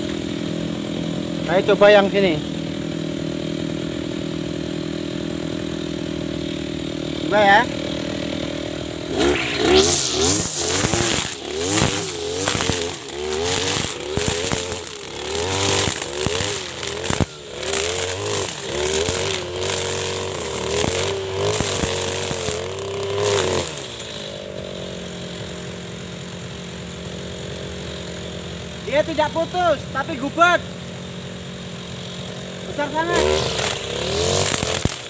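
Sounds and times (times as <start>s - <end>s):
trimmer line striking stems: 0.0s - 25.5s, 31.8s - 35.0s
brush cutter engine revving: 0.0s - 35.0s.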